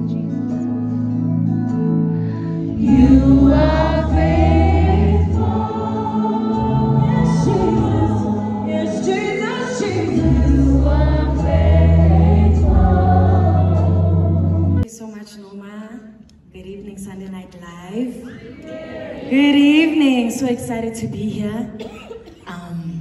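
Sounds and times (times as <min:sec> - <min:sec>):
band playing: 0:02.6 - 0:14.8
deep sustained bass notes: 0:02.7 - 0:06.0, 0:09.8 - 0:14.8
voices singing in chorus: 0:02.7 - 0:14.8.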